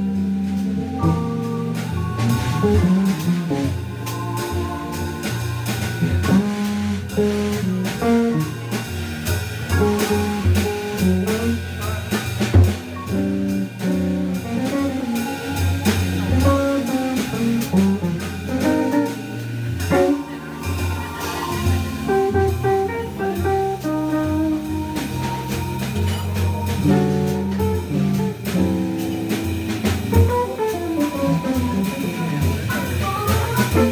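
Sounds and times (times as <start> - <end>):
drum kit: 0.0 - 33.9
organ with walking bass line: 0.0 - 33.9
electric guitar: 12.1 - 33.9.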